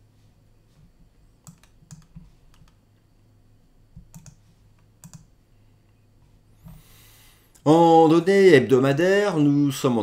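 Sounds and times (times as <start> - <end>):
faint low hum: 0.0 - 10.0
computer keyboard and mouse clicks: 1.4 - 2.8, 3.9 - 5.3.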